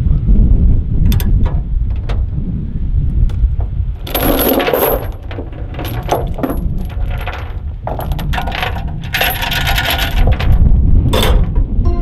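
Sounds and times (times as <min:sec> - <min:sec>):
low wind rumble on microphone: 0:00.0 - 0:12.0
steel chain clinking and rattling: 0:04.0 - 0:11.6.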